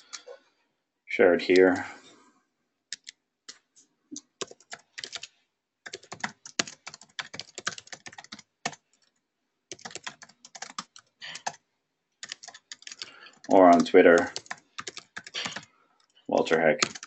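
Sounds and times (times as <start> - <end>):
keyboard typing clicks: 2.9 - 3.2, 4.2 - 5.3, 5.9 - 8.8, 9.7 - 11.6, 12.2 - 15.7, 16.8 - 17.0.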